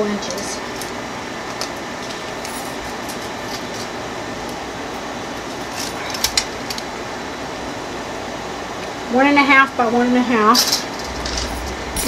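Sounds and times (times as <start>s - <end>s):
air conditioner humming: 0.0s - 12.0s.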